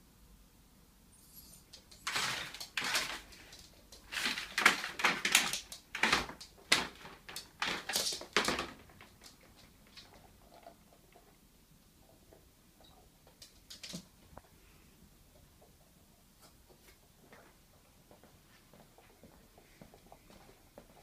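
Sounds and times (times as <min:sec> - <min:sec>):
plastic basket scraping on floor: 0:01.3 - 0:08.8.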